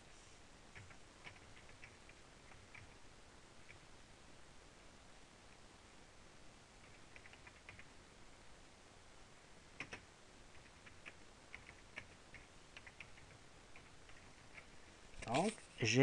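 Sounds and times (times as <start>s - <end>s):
computer keyboard keystrokes: 0.7s - 3.0s, 6.8s - 7.9s, 9.8s - 15.4s.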